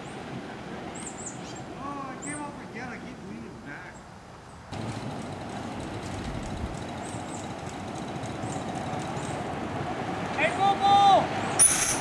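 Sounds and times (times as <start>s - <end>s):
miniature steam train rushing: 4.8s - 12.0s.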